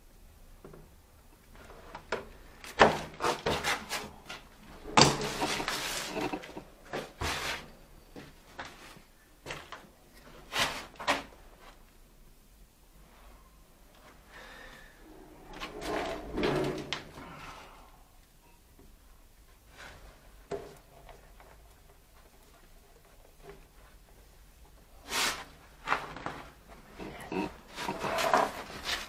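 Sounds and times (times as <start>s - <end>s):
scraping rub: 4.8s - 7.7s, 15.0s - 17.1s, 26.9s - 29.0s.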